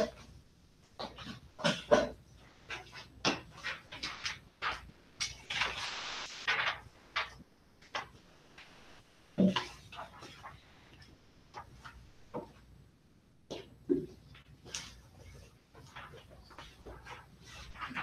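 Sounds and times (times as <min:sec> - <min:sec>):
clicks and knocks of handling papers: 0:00.0 - 0:05.8, 0:06.5 - 0:08.7, 0:09.4 - 0:12.7, 0:13.5 - 0:18.0
paper rustle: 0:06.4 - 0:08.2, 0:14.6 - 0:18.0.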